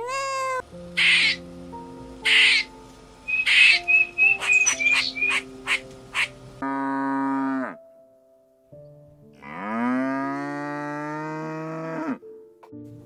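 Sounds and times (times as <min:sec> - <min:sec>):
cow mooing: 0:06.6 - 0:07.8, 0:09.4 - 0:12.2.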